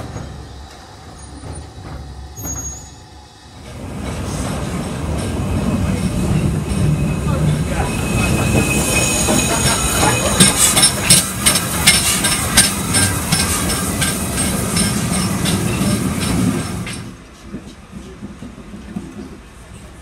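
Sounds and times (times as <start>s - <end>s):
steam train rumbling: 0.0s - 20.0s
wheels and couplings clanking: 3.6s - 19.5s.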